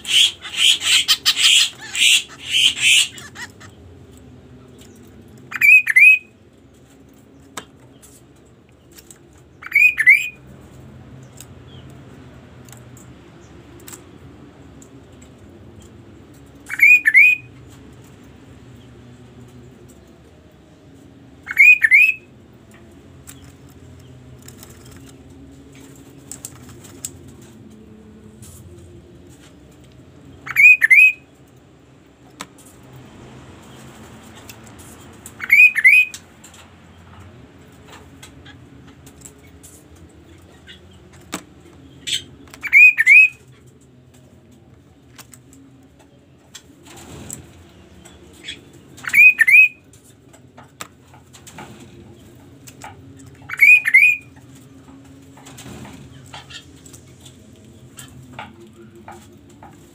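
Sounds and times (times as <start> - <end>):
songbird whistling calls: 0.0 - 3.5, 5.5 - 6.3, 9.6 - 10.4, 16.7 - 17.5, 21.5 - 22.3, 30.5 - 31.2, 35.4 - 36.2, 42.1 - 43.4, 48.4 - 49.8, 53.5 - 54.3.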